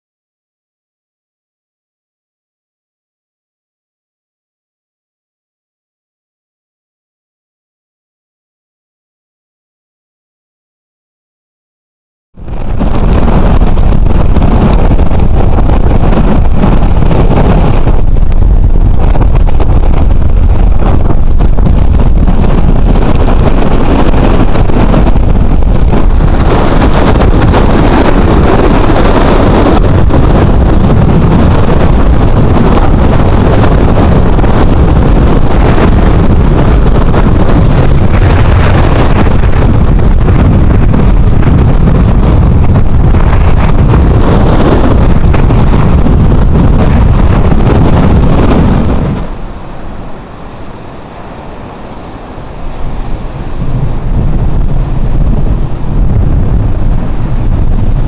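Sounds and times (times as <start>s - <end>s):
heavy surf breaking: 12.4s - 58.0s
strong wind across microphone: 12.4s - 58.0s.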